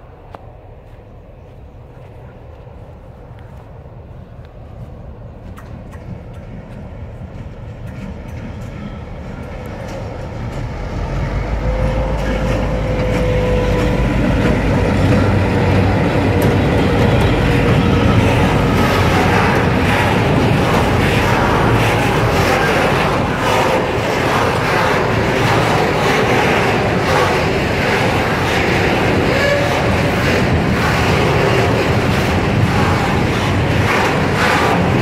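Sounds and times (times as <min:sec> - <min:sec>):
diesel locomotive engine drone: 0:00.0 - 0:35.0
train wheels clicking over rail joints: 0:05.4 - 0:35.0.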